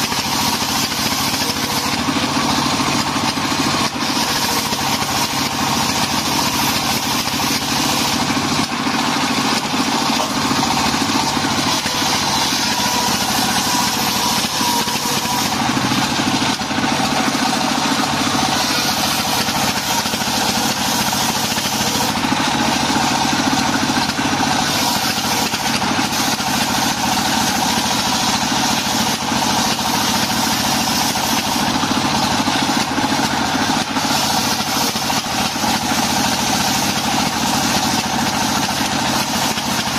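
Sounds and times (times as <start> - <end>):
circular saw cutting wood: 0.0 - 39.9
diesel engine running: 0.0 - 39.9.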